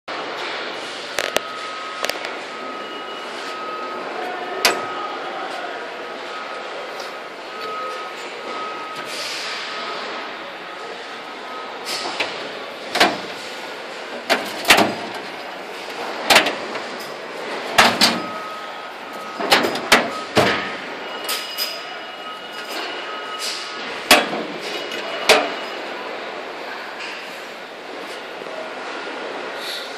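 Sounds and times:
steady background noise: 0.1 - 29.9
metal drawers clacking: 11.8 - 21.9, 22.5 - 25.7.

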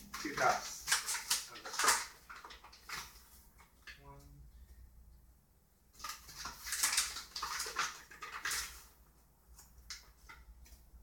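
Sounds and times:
flour bag rustling: 0.0 - 3.6.

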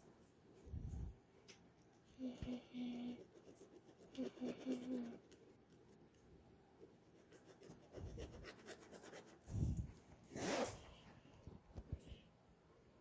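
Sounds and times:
pen scribbling on paper: 7.1 - 9.4.

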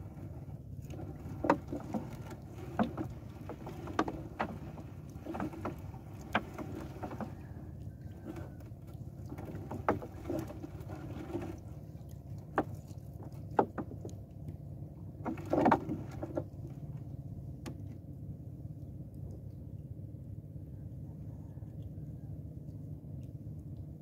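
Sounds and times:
knocks against hull: 0.0 - 7.6, 9.3 - 11.6, 12.4 - 14.2, 15.2 - 16.8
water lapping against boat: 0.0 - 19.8.

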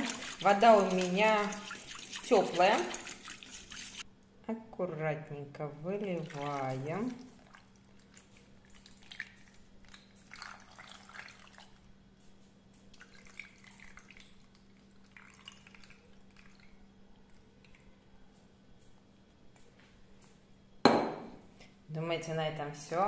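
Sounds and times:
sauce trickling and dripping: 0.0 - 4.0, 6.2 - 11.9, 12.7 - 18.1
faint steady hum: 0.0 - 23.0.

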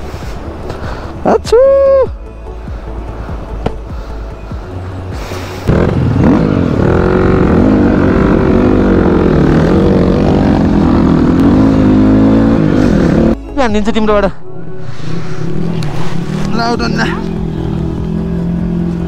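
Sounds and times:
dirt bike engine revving: 5.6 - 13.4.

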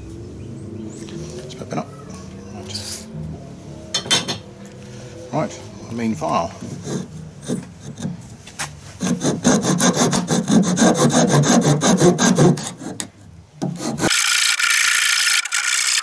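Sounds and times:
hand file rasping on wood: 6.6 - 8.3, 9.0 - 13.1, 13.7 - 16.0.

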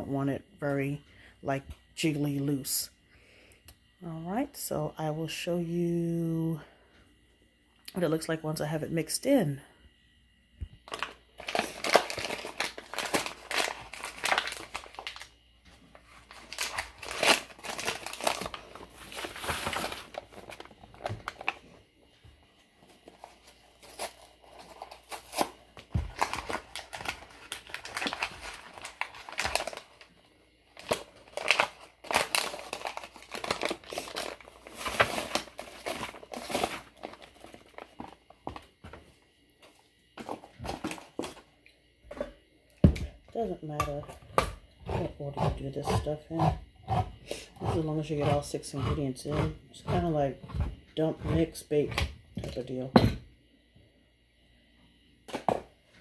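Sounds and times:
paper packaging crinkling and tearing: 10.9 - 15.3, 15.9 - 21.6, 23.0 - 30.1, 30.7 - 38.6.

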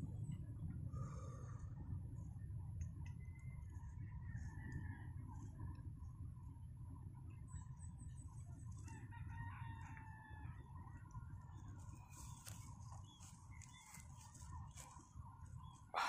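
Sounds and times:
steady low rumble: 0.0 - 9.1
faint rooster crowing: 4.0 - 5.7, 8.8 - 11.1.

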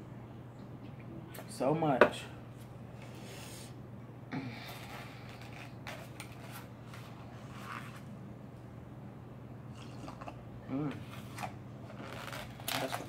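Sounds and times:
low steady background hum: 0.0 - 13.0
rustling of foam cup and napkin: 4.7 - 8.1, 11.0 - 13.0.

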